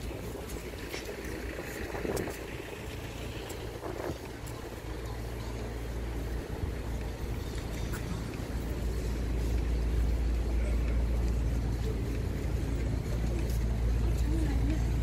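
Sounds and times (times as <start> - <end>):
wind rumble on microphone: 0.0 - 10.8
faint passing voices: 0.0 - 15.0.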